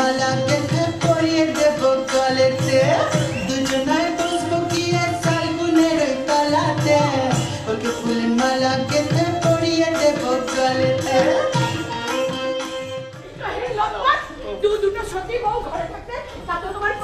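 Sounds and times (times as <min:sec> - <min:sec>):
hand drum beat: 0:00.0 - 0:13.4.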